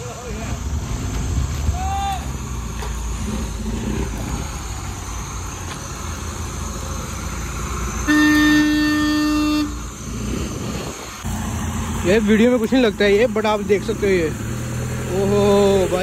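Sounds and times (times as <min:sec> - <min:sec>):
vehicle engines rumbling: 0:00.0 - 0:16.0
car horn honk: 0:08.0 - 0:09.8.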